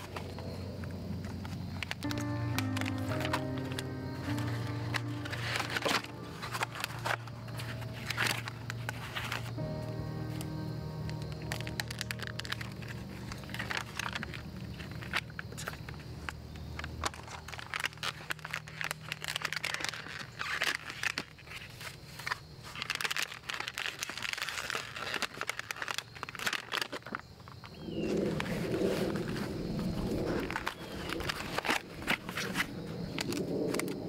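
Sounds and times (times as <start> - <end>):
packaging crinkling and rustling: 0.0 - 34.0
packaging tearing: 1.4 - 29.4, 30.2 - 34.0
low background music: 2.0 - 20.2.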